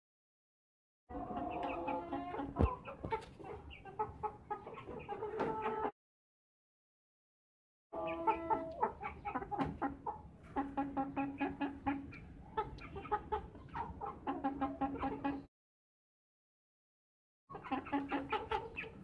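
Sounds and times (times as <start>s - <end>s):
chicken clucking: 1.1s - 5.9s, 8.0s - 15.5s, 17.5s - 19.0s.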